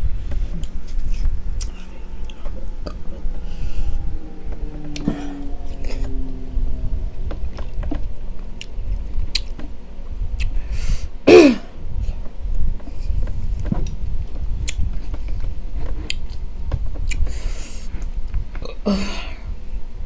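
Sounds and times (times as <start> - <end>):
wet chewing: 8.6 - 9.6
throat-clear or groan: 11.3 - 11.8, 18.6 - 19.4.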